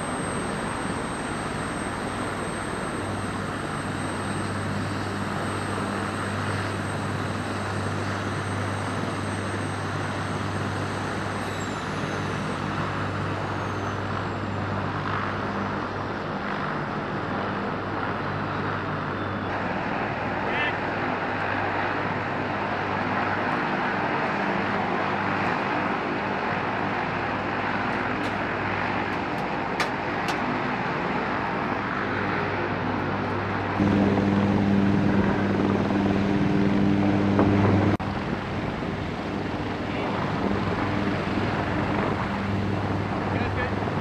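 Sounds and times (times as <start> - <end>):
aircraft engines running: 0.0 - 44.0
deep hum: 33.8 - 38.0.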